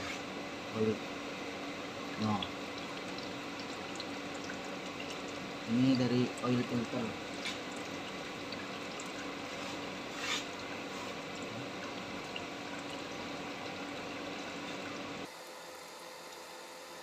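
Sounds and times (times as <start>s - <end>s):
faint steady hum: 0.0s - 17.0s
oil trickling: 1.9s - 15.3s.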